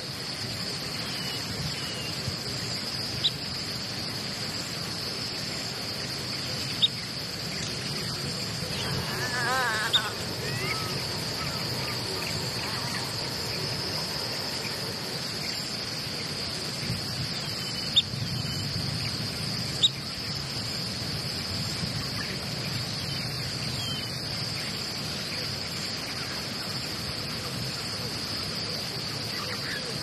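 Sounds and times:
crickets chirping: 0:00.0 - 0:30.0
low background rumble: 0:07.0 - 0:20.5.

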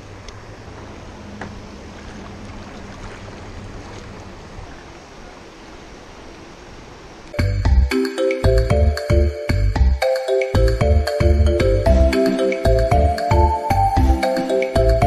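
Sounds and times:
flowing water rushing: 0:00.0 - 0:08.4.

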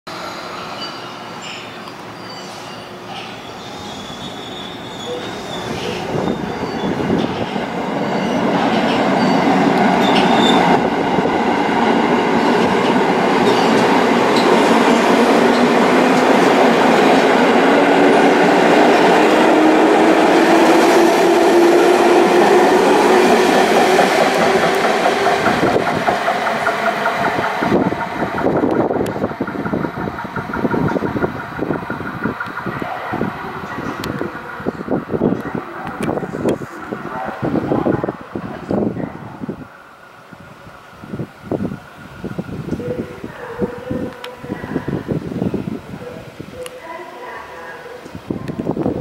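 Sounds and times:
train rumble: 0:02.9 - 0:49.0
train wheels clattering on rails: 0:05.0 - 0:36.7.

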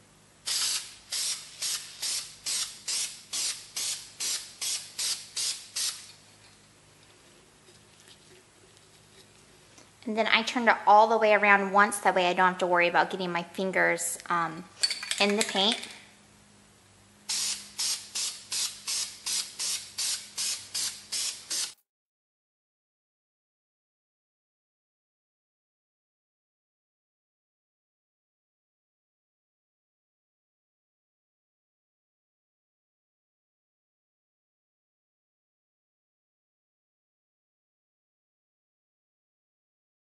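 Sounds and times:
spray paint can hissing: 0:00.5 - 0:06.1, 0:17.3 - 0:21.8.

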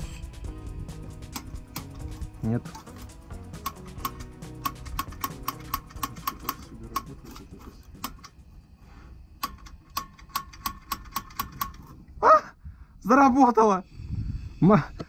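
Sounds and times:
gas stove igniter clicking: 0:01.1 - 0:08.4, 0:09.3 - 0:11.9.

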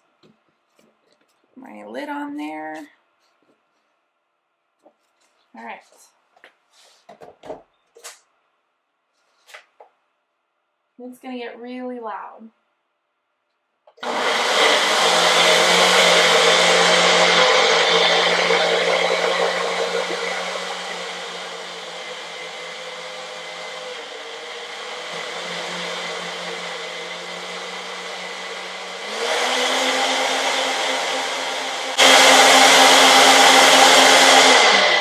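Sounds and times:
blender motor running: 0:14.0 - 0:35.0.

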